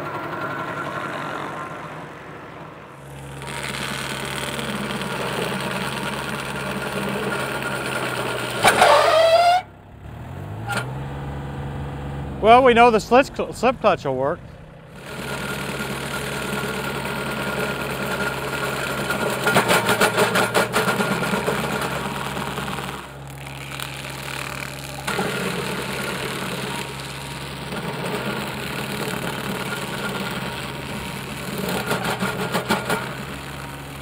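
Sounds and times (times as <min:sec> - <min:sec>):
tractor diesel engine running: 0:00.0 - 0:34.0
stump grinder chattering knocks: 0:03.0 - 0:09.6, 0:14.4 - 0:34.0.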